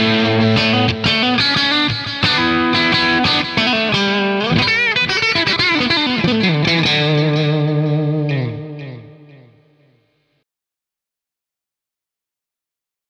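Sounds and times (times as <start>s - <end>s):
distorted electric guitar lead: 0.0s - 9.9s.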